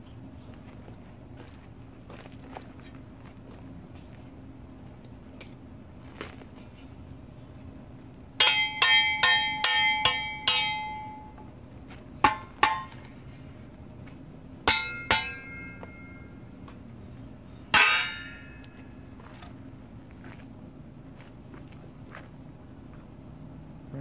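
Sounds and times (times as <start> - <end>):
angle iron clanging: 8.4 - 11.5, 12.2 - 13.3, 14.6 - 16.9, 17.7 - 19.0.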